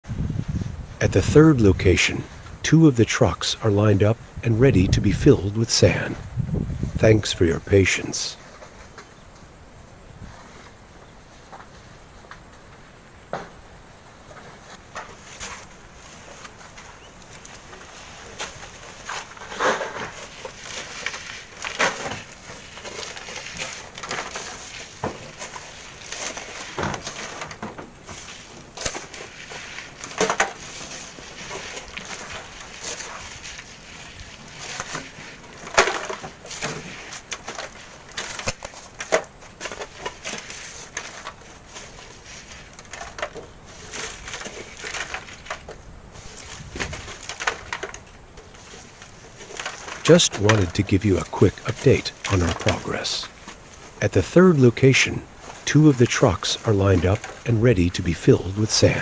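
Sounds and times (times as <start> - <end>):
shovels scraping sand and gravel: 14.6 - 59.0
stones and tools clattering: 18.4 - 54.0.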